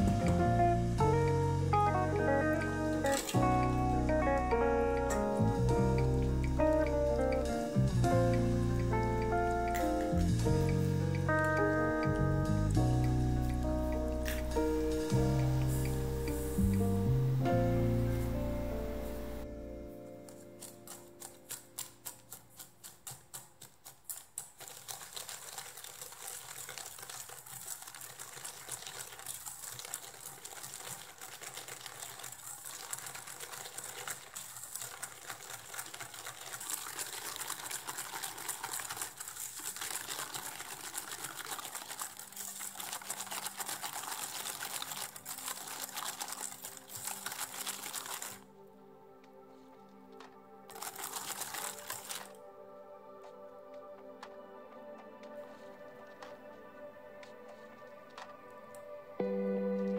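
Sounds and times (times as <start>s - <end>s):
whisk beating in metal bowl: 20.6s - 48.4s.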